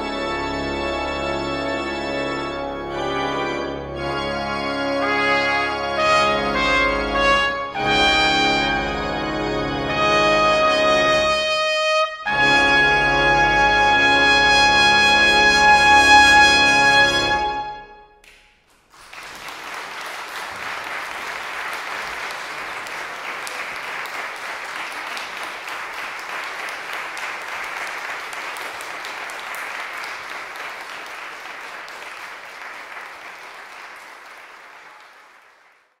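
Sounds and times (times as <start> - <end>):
audience applauding: 18.2 - 36.0.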